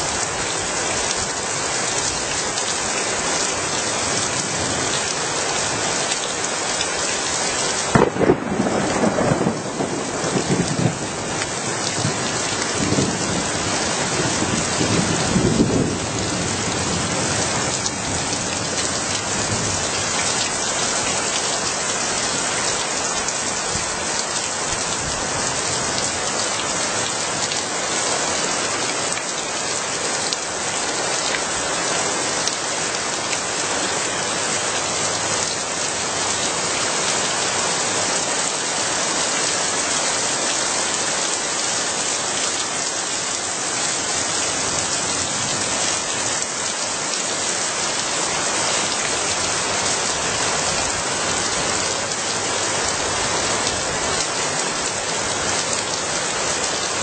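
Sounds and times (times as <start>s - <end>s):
steady rain: 0.0s - 57.0s
thunder rumbling: 7.9s - 20.4s.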